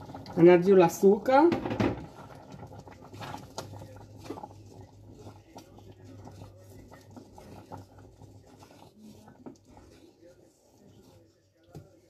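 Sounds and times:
wooden spoon scraping a pot: 0:00.0 - 0:12.0.

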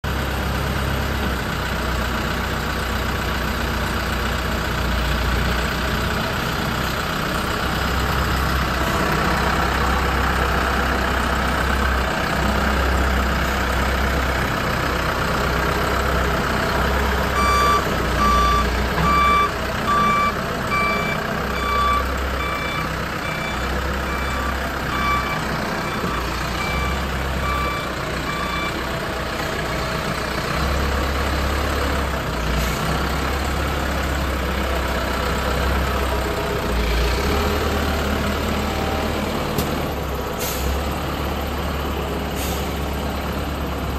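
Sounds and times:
diesel engine running: 0:00.0 - 0:43.9
reversing alarm beeping: 0:17.3 - 0:28.9.

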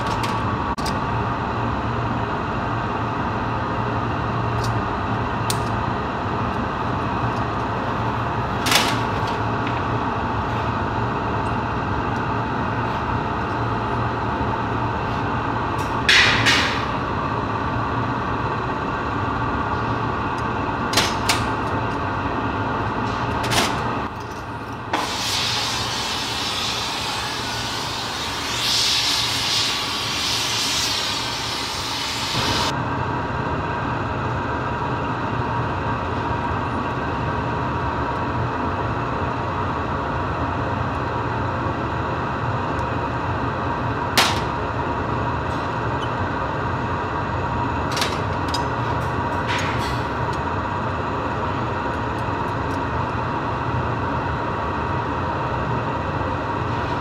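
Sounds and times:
workshop machinery humming: 0:00.0 - 0:57.0
gas torch hissing: 0:24.9 - 0:32.7.

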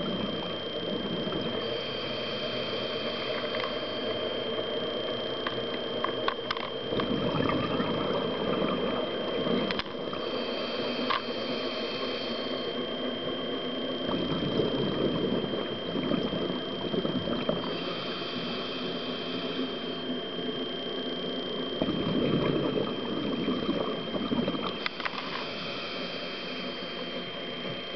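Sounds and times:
thin steady high tone: 0:00.0 - 0:27.9
regulator inhalation hiss: 0:01.6 - 0:04.4, 0:10.1 - 0:12.8, 0:17.5 - 0:20.2, 0:24.8 - 0:27.3
regulator bubbling exhalations: 0:06.8 - 0:13.0, 0:14.0 - 0:20.1, 0:21.7 - 0:27.7.

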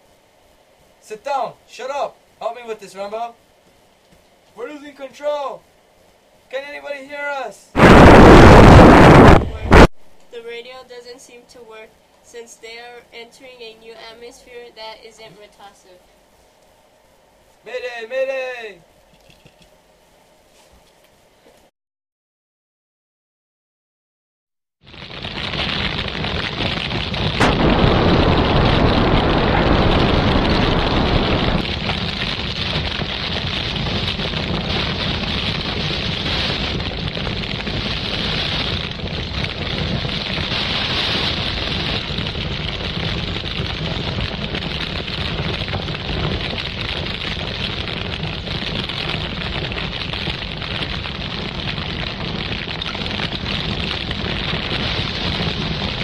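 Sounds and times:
explosion-like rush: 0:07.8 - 0:09.9, 0:24.8 - 0:56.0
sharp crack: 0:07.8 - 0:09.9, 0:24.8 - 0:56.0.

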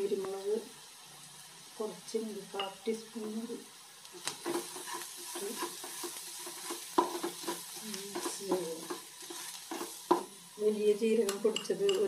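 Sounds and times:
frying sizzle: 0:00.0 - 0:12.0
spatula scraping wok: 0:04.2 - 0:12.0.

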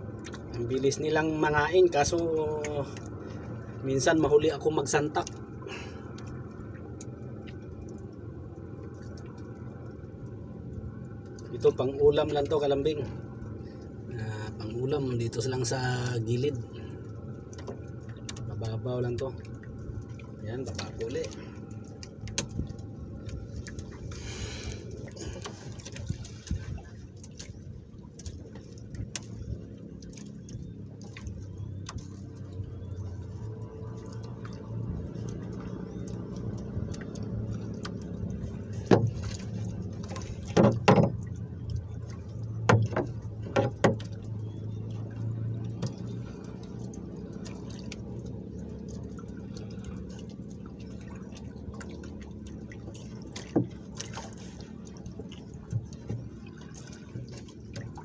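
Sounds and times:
steady low hum: 0:00.0 - 0:58.0
knocks against boat: 0:38.7 - 0:39.5, 0:40.1 - 0:41.4, 0:42.6 - 0:44.2, 0:53.3 - 0:54.2.

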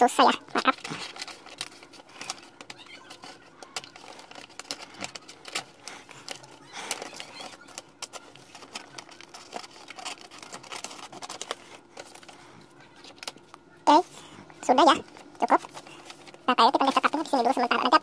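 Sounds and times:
paper crinkling: 0:00.0 - 0:18.0
paper rustling: 0:00.1 - 0:14.3, 0:14.9 - 0:18.0.

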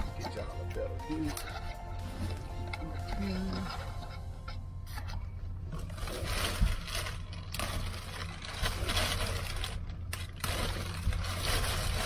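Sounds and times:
steady low hum: 0:00.0 - 0:12.0
plastic wrapping rustling: 0:04.9 - 0:12.0.

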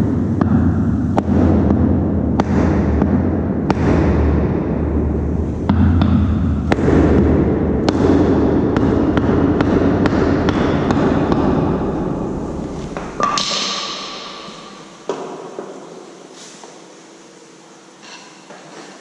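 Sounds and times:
steady low rumble: 0:00.0 - 0:15.1.

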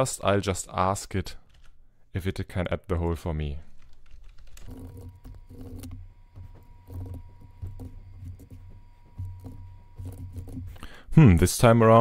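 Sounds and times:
typing on computer keyboard: 0:01.4 - 0:01.8
faint steady whine: 0:03.4 - 0:12.0.

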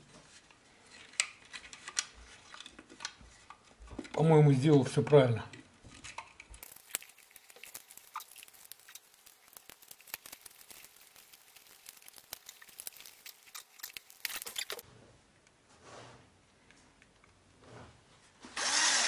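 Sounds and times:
plastic box crackling and scraping: 0:06.0 - 0:14.8.

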